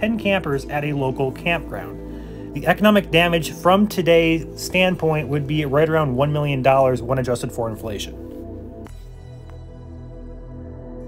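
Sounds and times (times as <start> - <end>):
soft ambient music: 0.0 - 11.0.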